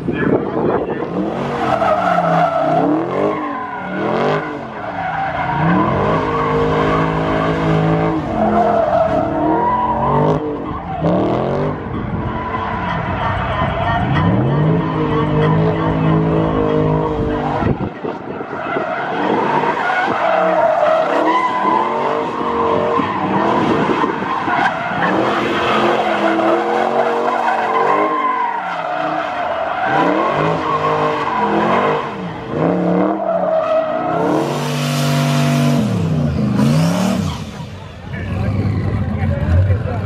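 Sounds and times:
tires skidding and squealing: 0:00.0 - 0:40.0
car engine revving hard: 0:00.6 - 0:11.9, 0:19.2 - 0:28.2, 0:28.8 - 0:40.0.

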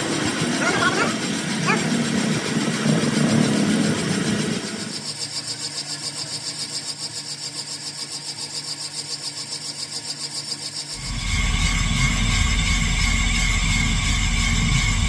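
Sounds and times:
machine pulsing: 0:00.0 - 0:06.3, 0:10.9 - 0:15.0.

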